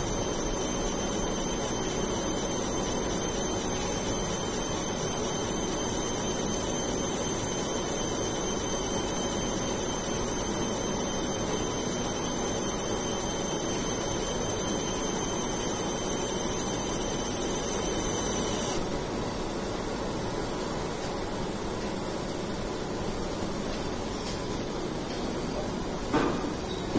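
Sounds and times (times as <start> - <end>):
thin high whine: 0.0 - 18.8.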